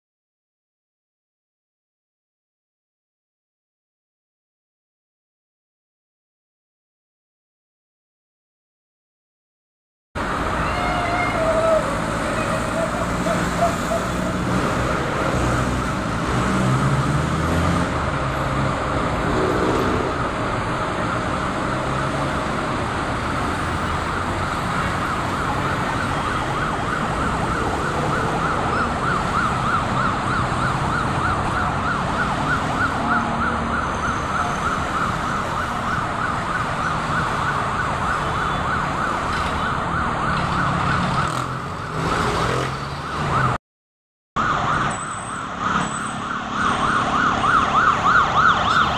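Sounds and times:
road traffic rumble: 0:10.2 - 0:43.6, 0:44.4 - 0:48.9
siren warbling: 0:11.0 - 0:16.1, 0:23.5 - 0:38.9, 0:44.4 - 0:48.9.

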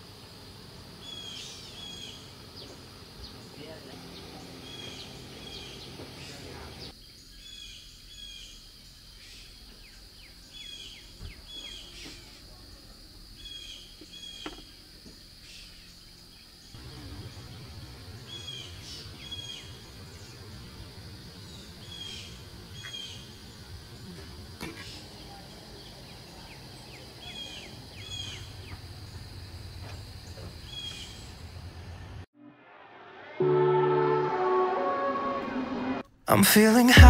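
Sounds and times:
high-pitched hum: 0:32.4 - 0:37.0.

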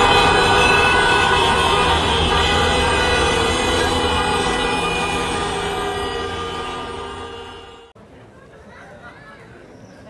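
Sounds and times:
held chord of steady tones: 0:00.0 - 0:08.0.

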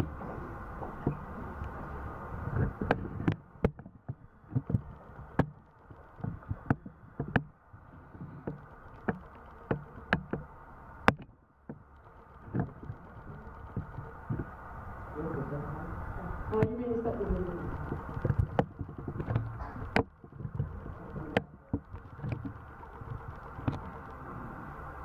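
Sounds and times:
low rumbling thumps: 0:00.0 - 0:24.8
microphone handling knocks: 0:02.4 - 0:05.6, 0:06.2 - 0:11.8, 0:17.7 - 0:24.0.

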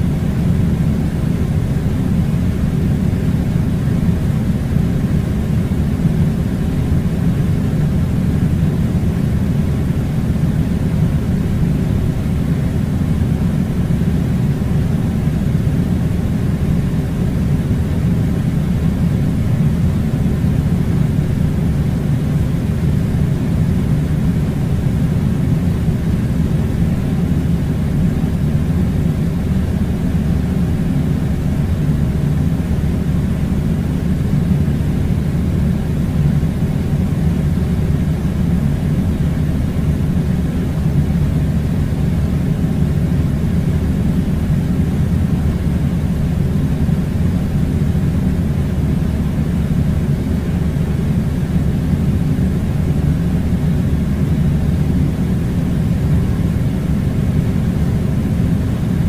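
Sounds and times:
air conditioner blowing: 0:00.0 - 0:59.0.

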